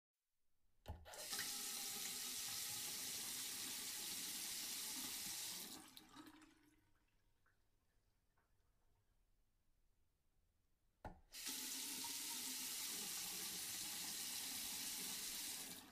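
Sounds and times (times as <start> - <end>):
water running into basin: 1.1 - 7.9, 11.4 - 15.9
water dripping: 4.8 - 8.7.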